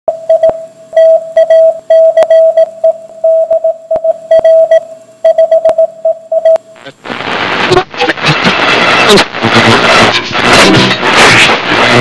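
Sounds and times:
morse code beeps: 0:00.3 - 0:06.6
static crackles: 0:06.5 - 0:12.0.

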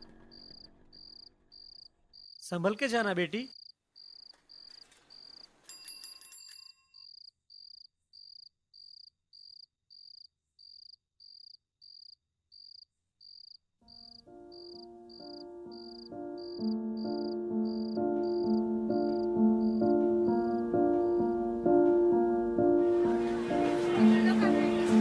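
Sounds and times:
crickets chirping: 0:00.0 - 0:05.6, 0:07.0 - 0:21.2
bicycle bell ringing: 0:05.6 - 0:07.1
soft background music: 0:13.9 - 0:25.0.

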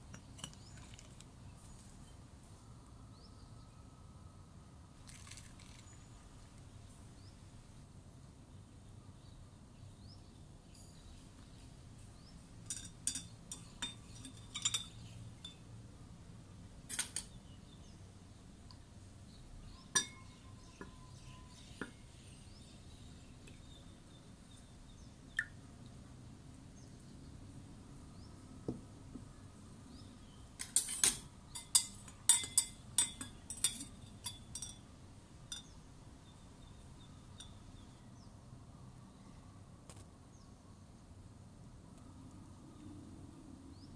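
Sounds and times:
glassware clinking: 0:12.7 - 0:15.6, 0:19.9 - 0:22.0, 0:30.6 - 0:34.8, 0:35.5 - 0:35.8
spoon stirring in glass: 0:12.7 - 0:15.6, 0:30.6 - 0:34.8.

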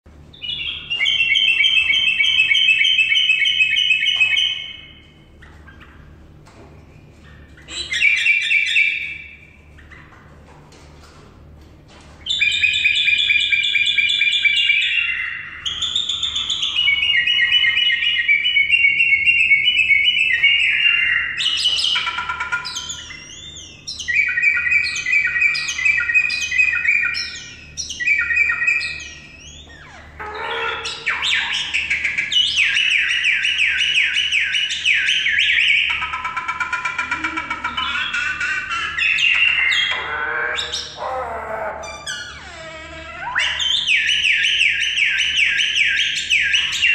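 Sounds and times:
bird chattering and trilling: 0:00.3 - 0:10.2, 0:12.2 - 0:46.9.

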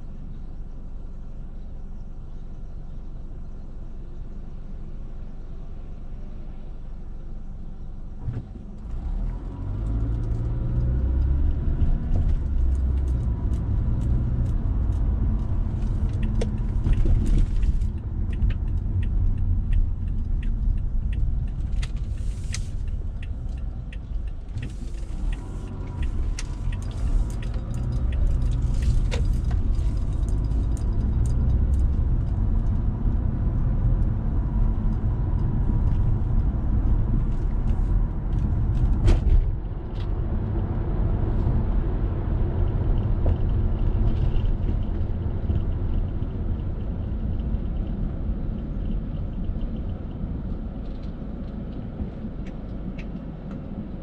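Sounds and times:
engine and tyres rumbling: 0:00.0 - 0:54.0
car engine idling: 0:14.9 - 0:33.0.

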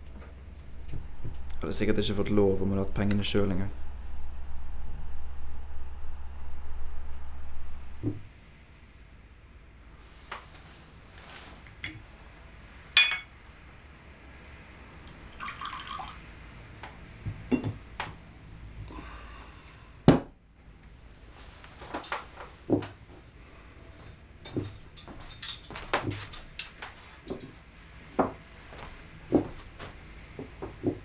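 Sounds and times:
glass clinking: 0:13.0 - 0:13.3, 0:17.5 - 0:17.8
liquid pouring: 0:15.1 - 0:16.2.

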